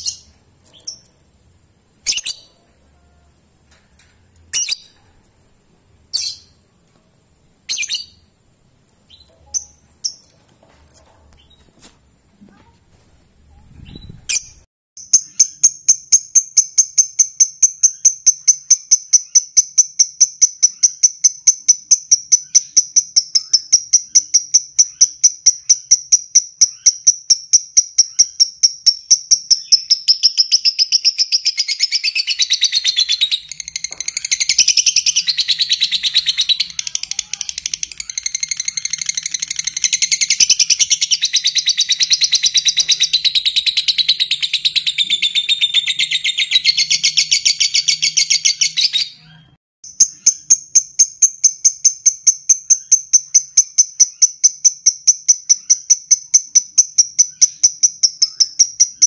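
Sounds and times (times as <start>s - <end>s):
bird ticking chirps: 14.4s - 49.0s, 49.8s - 59.0s
bird high chattering: 27.9s - 49.3s.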